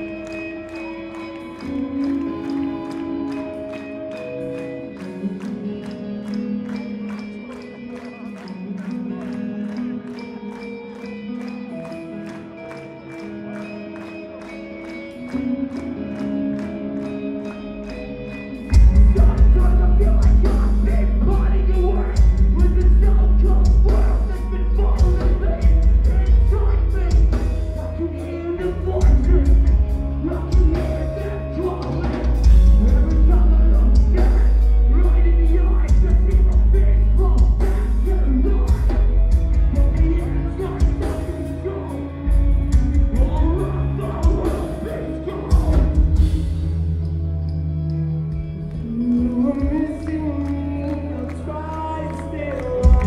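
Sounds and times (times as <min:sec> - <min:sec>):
distorted electric guitars: 0:00.0 - 0:53.0
person singing: 0:00.0 - 0:53.0
rock band playing live: 0:00.0 - 0:53.0
drums: 0:18.6 - 0:47.0.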